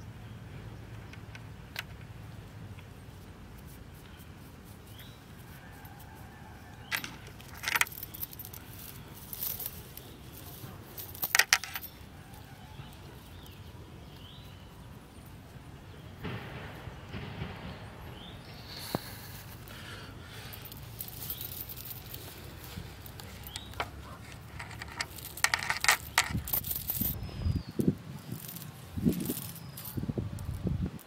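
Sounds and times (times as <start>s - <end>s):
chain clinking and rattling: 6.8s - 13.6s, 19.5s - 27.2s, 28.2s - 30.6s.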